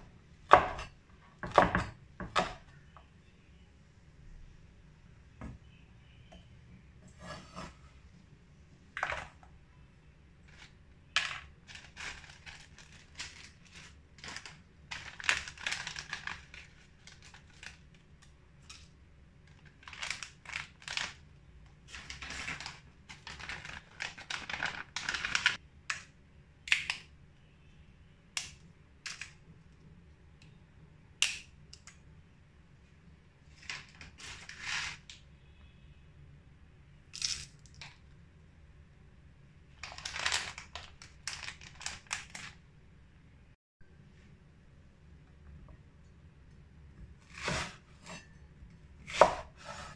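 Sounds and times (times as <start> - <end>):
cleaver scraping wooden board: 47.3 - 48.2.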